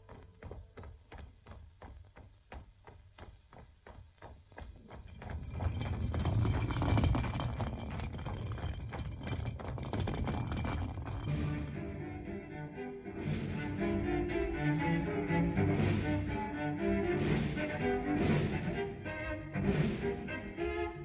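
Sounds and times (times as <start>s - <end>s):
full orchestra playing: 13.2s - 21.0s.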